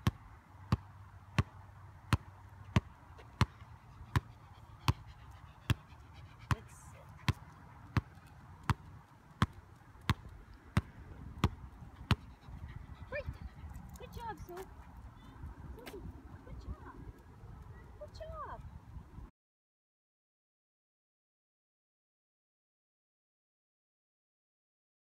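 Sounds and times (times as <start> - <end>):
ball bouncing on asphalt: 0.0 - 5.1, 6.5 - 12.3, 15.8 - 16.1.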